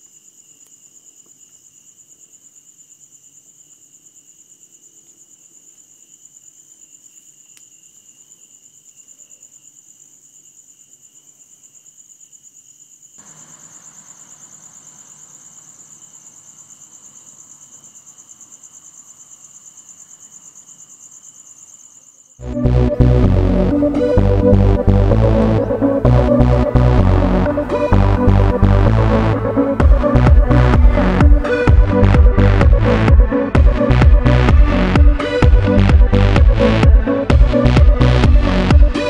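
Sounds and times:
lower insect trill: 0.0 - 22.4
high pulsing insect trill: 0.0 - 39.0.

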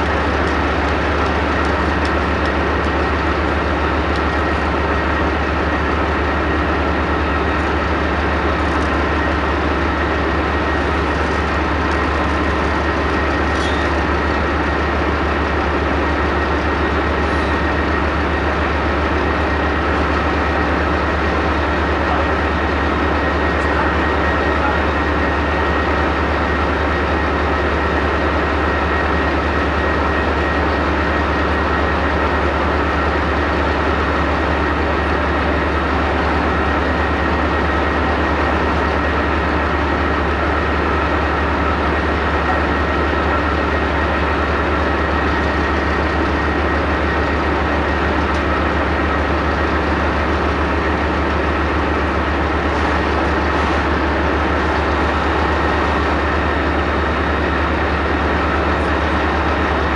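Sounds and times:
diesel engine idling: 0.0 - 59.9.

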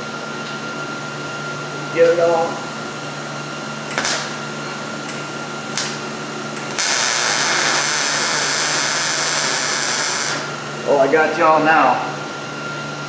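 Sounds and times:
arc welding hiss: 6.7 - 10.5.

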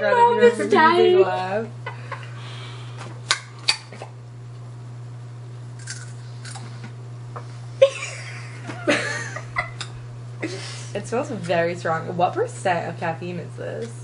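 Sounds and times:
low steady hum: 0.0 - 14.0
laughter: 1.8 - 2.3, 7.8 - 10.6.

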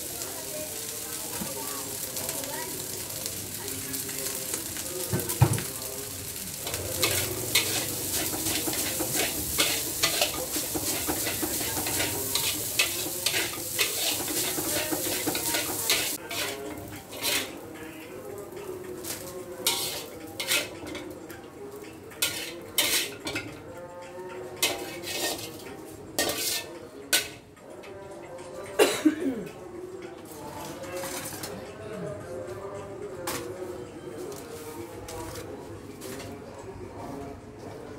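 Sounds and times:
rice sizzling in a wok: 0.0 - 20.8, 22.2 - 23.2, 24.6 - 25.6, 26.2 - 27.4
metal spatula scraping a wok: 6.6 - 17.7, 19.1 - 21.0, 22.2 - 23.5, 24.6 - 27.4.

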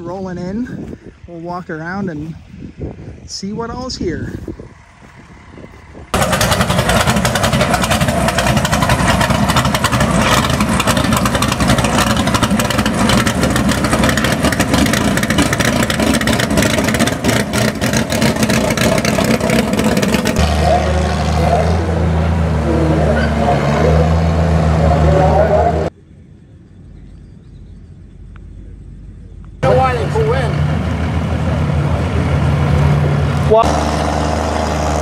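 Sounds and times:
heavy vehicle engine running hard: 4.3 - 25.9, 29.6 - 35.0.

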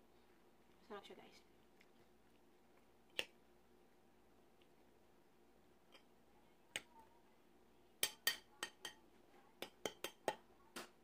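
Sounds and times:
metal spoon clinking on glass bowl: 8.0 - 9.0, 9.6 - 10.4.

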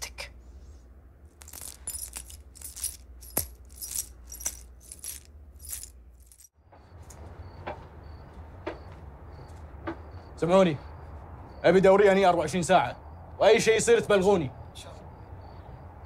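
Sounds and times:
light metallic jingling: 1.4 - 6.5.

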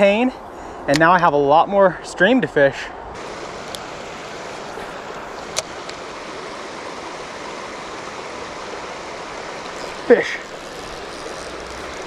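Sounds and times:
creek flowing: 2.9 - 12.0.

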